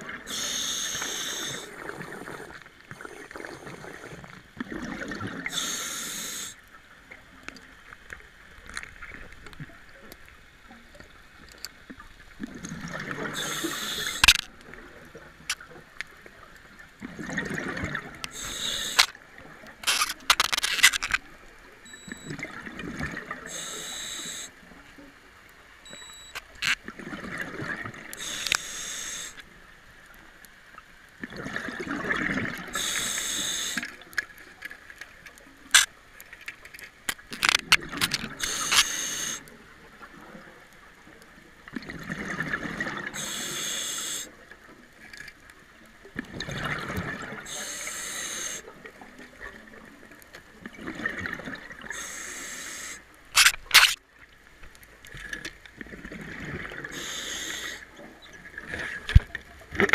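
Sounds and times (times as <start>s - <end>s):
diver breathing through regulator: 0.3s - 4.2s, 5.5s - 6.6s, 13.3s - 14.4s, 18.3s - 19.1s, 23.5s - 24.5s, 28.2s - 29.4s, 32.8s - 33.9s, 38.4s - 39.5s, 43.2s - 44.3s, 47.5s - 48.7s, 51.9s - 53.0s, 56.9s - 57.9s
exhaled bubbles rushing: 1.5s - 5.5s, 17.0s - 18.2s, 31.2s - 32.8s, 41.7s - 43.2s, 46.2s - 47.5s, 55.8s - 56.9s.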